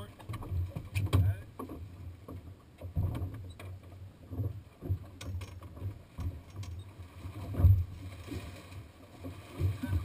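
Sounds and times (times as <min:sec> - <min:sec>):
sharp clicks and knocks: 0:00.0 - 0:06.9
water thumping against hull: 0:00.0 - 0:10.0.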